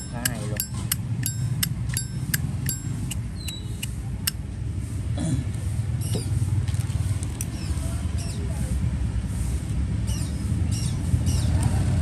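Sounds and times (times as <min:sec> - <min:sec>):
lighter case clinking and clicking: 0:00.0 - 0:03.9
low traffic rumble: 0:00.0 - 0:12.0.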